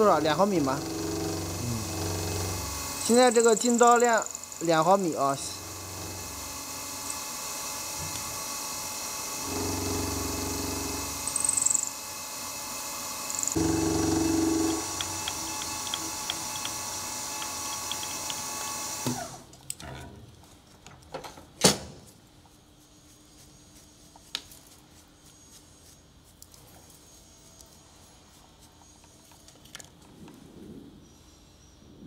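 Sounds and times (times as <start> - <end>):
milling machine running: 0.0 - 19.4.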